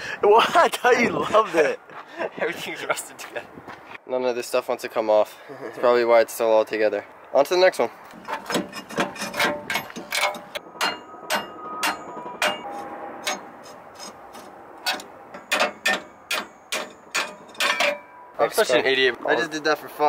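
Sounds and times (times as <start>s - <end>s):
hammer tapping metal: 8.5s - 14.2s, 14.8s - 18.2s.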